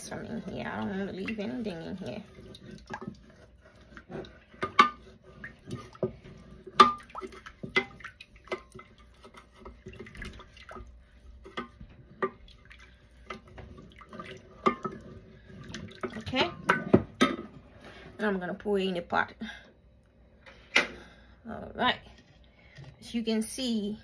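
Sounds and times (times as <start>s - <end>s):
wooden spoon scraping steel pot: 0.0s - 18.4s.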